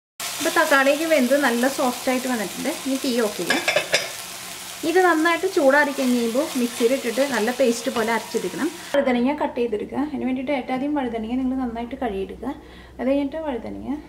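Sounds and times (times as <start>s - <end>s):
light sizzle of frying: 0.2s - 9.0s.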